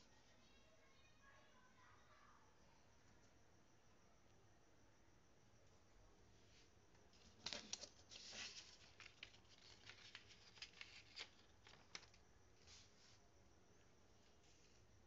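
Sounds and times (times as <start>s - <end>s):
soft handling rustles and clicks: 6.6s - 13.2s.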